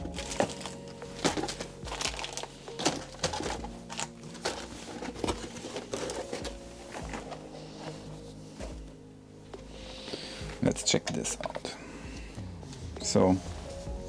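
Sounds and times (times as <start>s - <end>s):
plastic bags crinkling: 0.0s - 8.0s.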